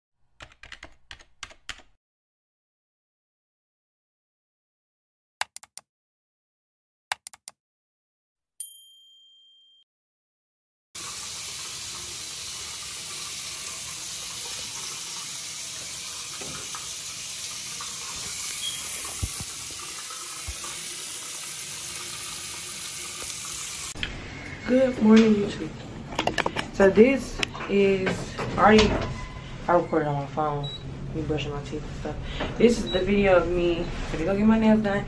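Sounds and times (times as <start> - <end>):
notification ding: 8.6 - 9.8
sink tap running: 11.0 - 24.0.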